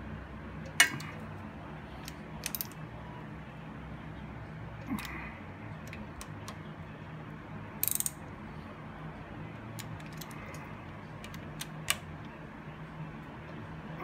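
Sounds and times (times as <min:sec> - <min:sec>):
hand ratchet clicking: 0:07.8 - 0:08.1.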